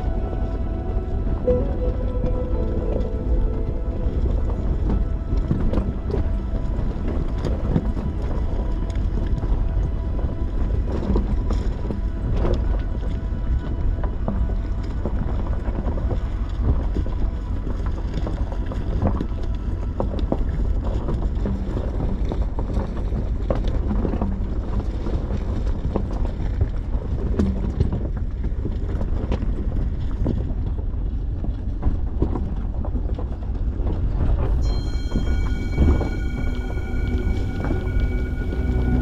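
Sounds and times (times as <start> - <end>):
wind noise on microphone: 0.0 - 39.0.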